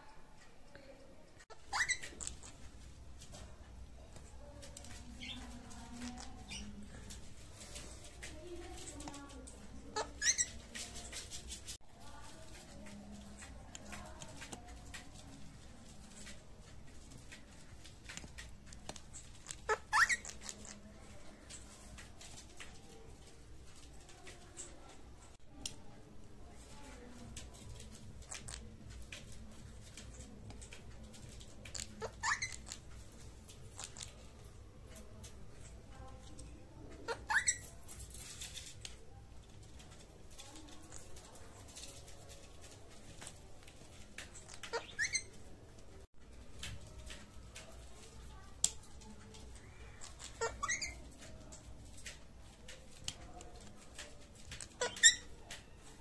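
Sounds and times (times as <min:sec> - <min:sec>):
parakeet squeak: 0:01.5 - 0:02.6, 0:05.1 - 0:06.8, 0:09.9 - 0:10.8, 0:19.1 - 0:20.8, 0:31.7 - 0:32.8, 0:37.0 - 0:37.8, 0:44.4 - 0:45.4, 0:49.7 - 0:51.1, 0:54.6 - 0:55.3.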